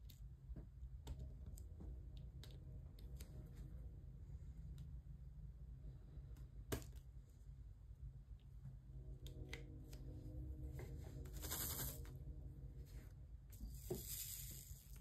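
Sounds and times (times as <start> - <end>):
loose plastic beads rattling: 13.6 - 15.0.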